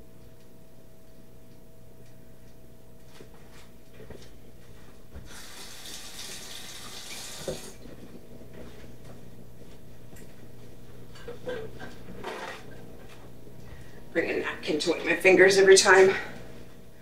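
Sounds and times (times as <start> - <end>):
faucet running water: 5.2 - 7.8.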